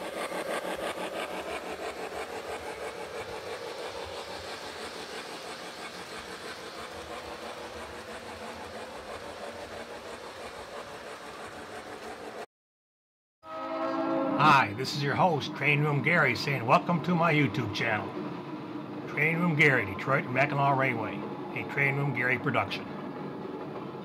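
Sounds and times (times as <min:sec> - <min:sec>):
model train wheels clicking: 0:00.0 - 0:12.4
model train running hum: 0:00.0 - 0:12.5, 0:13.5 - 0:24.0.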